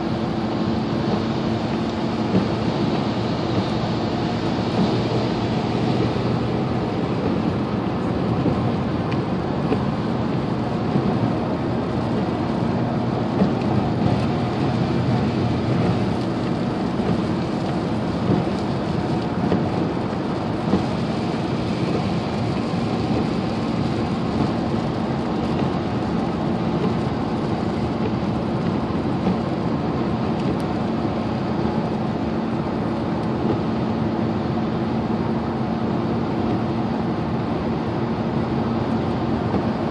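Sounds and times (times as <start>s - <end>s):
low engine and road drone: 0.0s - 39.9s
tyres hissing on wet road: 0.0s - 39.9s.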